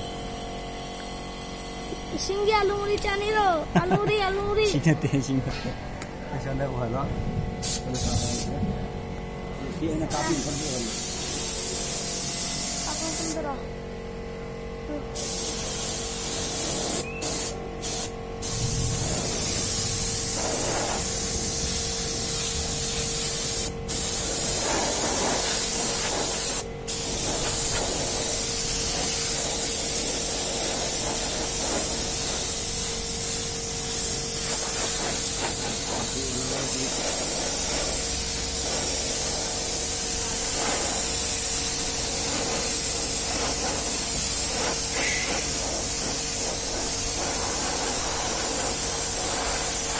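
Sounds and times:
steady hum: 0.0 - 49.9
spray gun hissing: 7.6 - 8.5, 10.0 - 13.5, 15.1 - 49.9.

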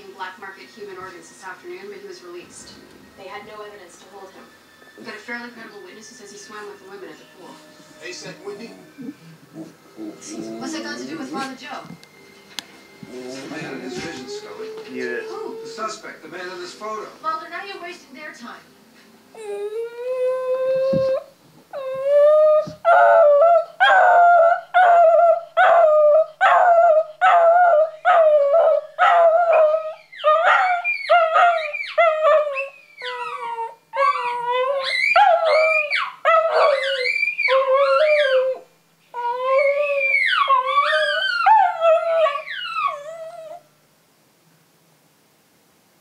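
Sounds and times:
dog howling and yelping: 6.6 - 11.5, 13.1 - 16.0, 19.4 - 43.7.

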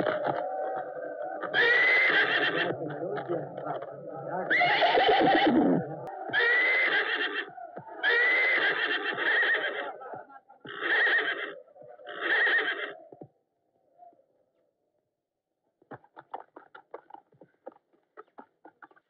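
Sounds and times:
horse neighing: 1.4 - 2.9, 4.5 - 10.0, 10.6 - 13.0.

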